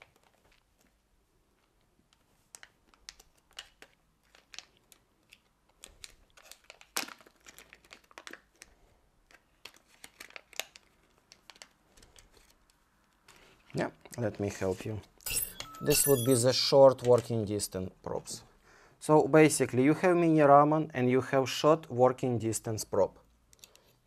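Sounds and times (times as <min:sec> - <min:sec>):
packaging bags crinkling and tearing: 0:02.6 - 0:12.7.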